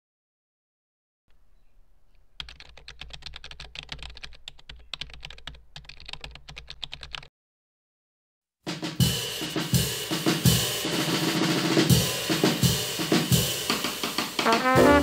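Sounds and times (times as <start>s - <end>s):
keyboard typing: 1.8s - 7.3s.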